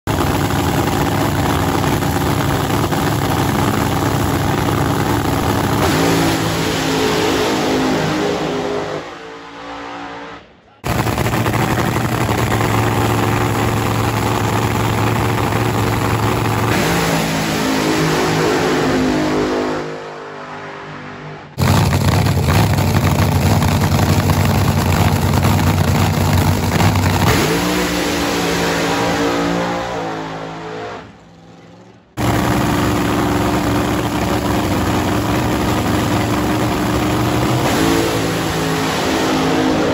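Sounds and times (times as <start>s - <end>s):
drag car engine at full throttle: 0.0s - 39.9s.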